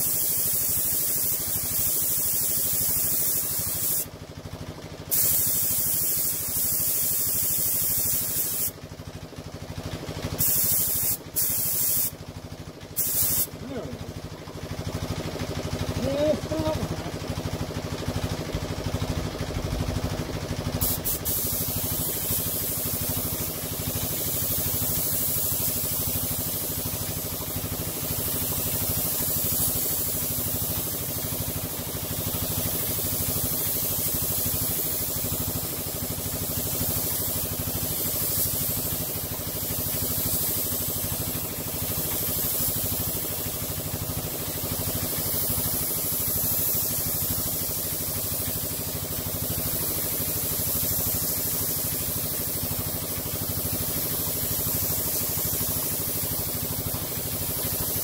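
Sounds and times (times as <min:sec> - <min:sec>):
spray gun hissing: 0:00.0 - 0:04.1, 0:05.1 - 0:08.8, 0:10.4 - 0:12.2, 0:12.9 - 0:13.9, 0:20.8 - 0:58.0
air compressor humming: 0:00.0 - 0:58.0.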